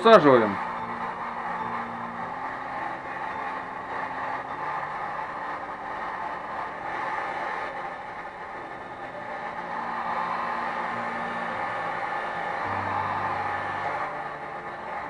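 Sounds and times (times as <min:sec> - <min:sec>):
heat gun blowing: 0:00.0 - 0:15.0.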